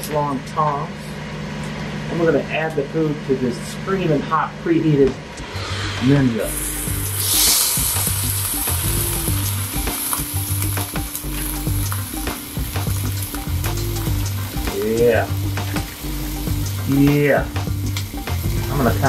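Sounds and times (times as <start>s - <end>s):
chicken sizzling on grill: 6.5s - 19.0s.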